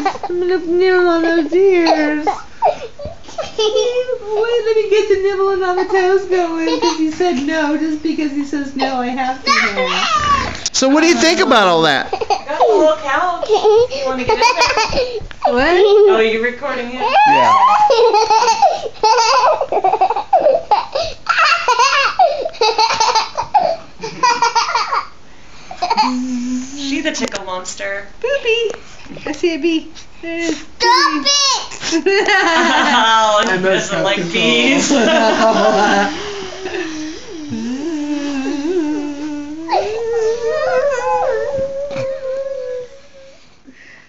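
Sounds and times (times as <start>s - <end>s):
child whining cry: 9.4s - 10.6s, 17.0s - 18.2s, 36.2s - 43.5s
boy laughing: 17.1s - 20.6s, 34.4s - 43.4s.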